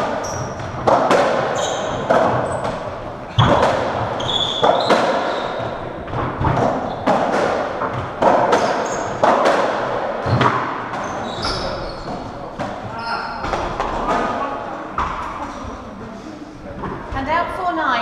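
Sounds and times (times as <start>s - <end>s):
shoes squeaking on wooden floor: 0.0s - 7.2s, 7.8s - 9.3s, 10.2s - 14.1s
ball cracking off rackets and walls: 0.0s - 14.4s.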